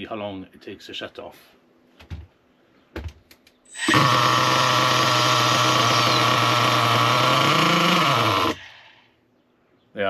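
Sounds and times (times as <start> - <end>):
small nitro engine running: 3.7 - 8.7.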